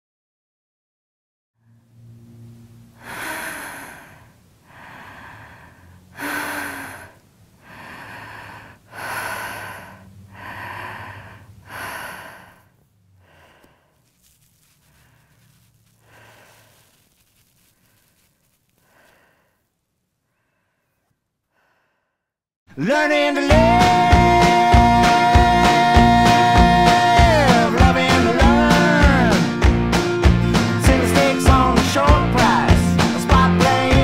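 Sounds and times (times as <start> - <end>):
steady low hum: 1.6 - 17.2
person breathing heavily: 3.0 - 17.1, 17.8 - 22.3.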